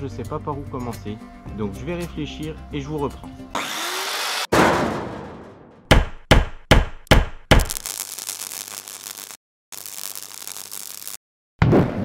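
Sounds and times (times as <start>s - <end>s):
crackling hiss: 7.7s - 11.2s.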